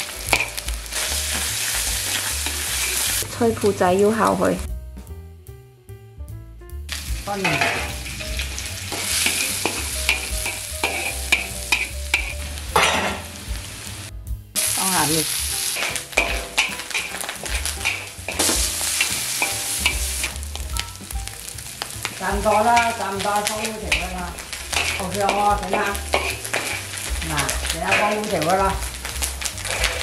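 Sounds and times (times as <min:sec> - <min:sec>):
food sizzling in oil: 0:00.0 - 0:04.6, 0:06.9 - 0:30.0
spatula scraping a pan: 0:07.4 - 0:13.3, 0:15.6 - 0:20.4, 0:21.8 - 0:30.0.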